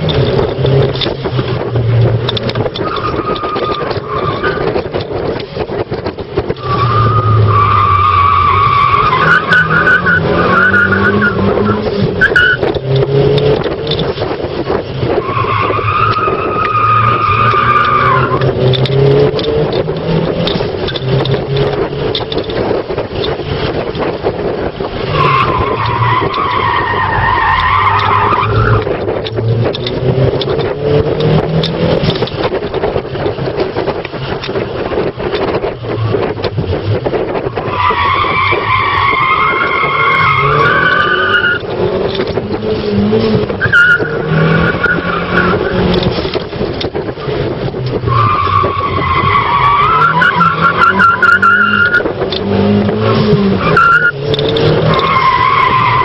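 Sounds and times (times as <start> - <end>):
car engine running hard: 0.0 - 56.0
tyres squealing: 2.6 - 4.9, 6.6 - 13.0, 15.2 - 20.2, 25.1 - 29.0, 37.6 - 46.0, 48.0 - 56.0.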